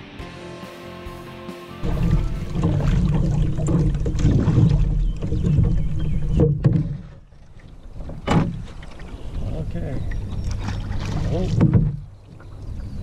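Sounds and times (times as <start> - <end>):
low rumble: 1.8 - 7.1
sharp water splashes: 1.8 - 9.2, 10.2 - 12.8
canoe paddle strokes in water: 1.8 - 13.0.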